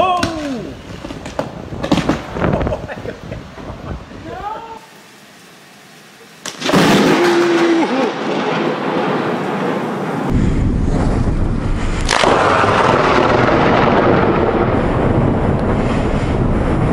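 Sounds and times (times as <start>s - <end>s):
rain: 0.0s - 16.9s
rolling thunder: 0.9s - 4.2s, 6.6s - 16.9s
sharp crack of thunder: 1.0s - 3.9s, 6.5s - 16.9s.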